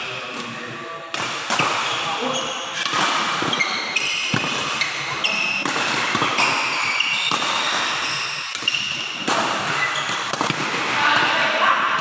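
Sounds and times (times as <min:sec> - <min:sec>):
rackets hitting shuttlecock: 0:00.3 - 0:02.2, 0:02.8 - 0:12.0
shoes squeaking on court: 0:01.8 - 0:10.4.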